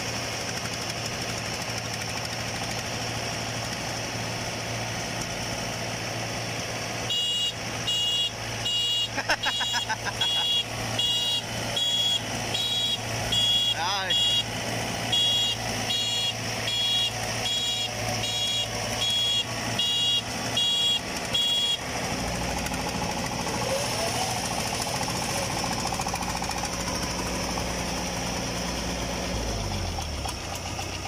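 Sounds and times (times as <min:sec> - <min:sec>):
diesel engine running: 0:00.0 - 0:31.0
short high beeps: 0:07.2 - 0:14.5.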